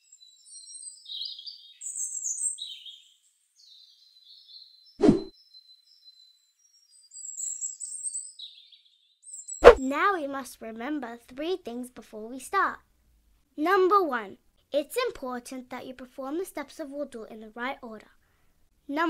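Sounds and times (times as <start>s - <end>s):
birds chirping: 0.0s - 9.8s
short pop: 9.6s - 9.8s.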